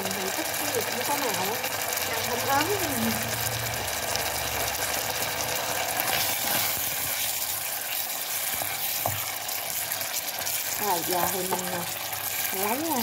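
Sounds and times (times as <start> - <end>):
beef sizzling in oil: 0.0 - 13.0
chopsticks stirring: 4.6 - 13.0.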